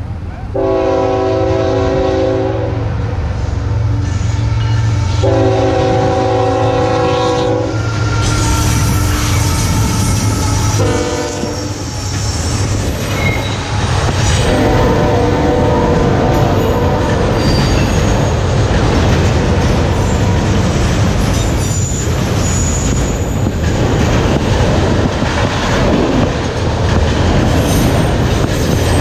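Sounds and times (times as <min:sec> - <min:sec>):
locomotive air horn blasts: 0:00.6 - 0:02.9, 0:03.9 - 0:12.0, 0:14.4 - 0:17.4
train wheels clattering on rails: 0:04.0 - 0:29.0.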